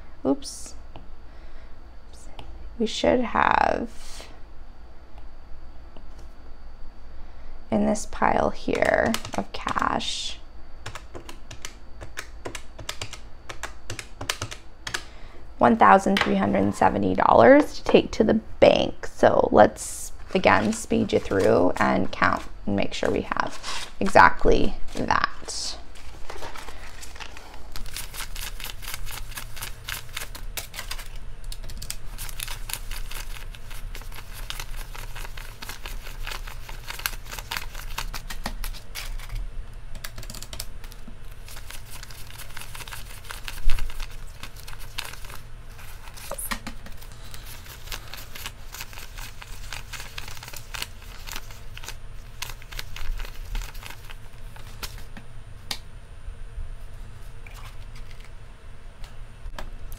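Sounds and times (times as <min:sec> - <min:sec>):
low steady hum: 0:00.0 - 0:59.9
banknotes flicking and rustling: 0:20.2 - 0:25.2, 0:25.9 - 0:39.4, 0:40.0 - 0:55.2.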